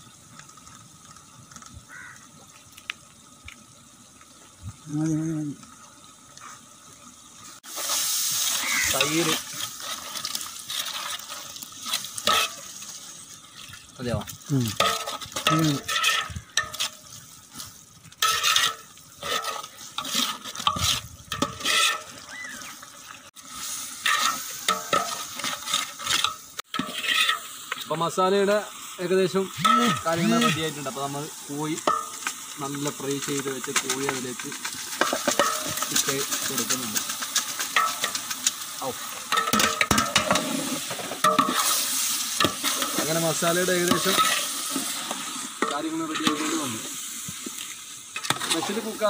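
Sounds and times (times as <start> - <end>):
gravy simmering in a pot: 0.0 - 7.7
metal spoon scraping a pot: 8.6 - 12.8, 14.7 - 17.0, 18.2 - 22.2, 24.0 - 27.6, 33.7 - 38.6, 39.3 - 41.8, 43.8 - 46.5.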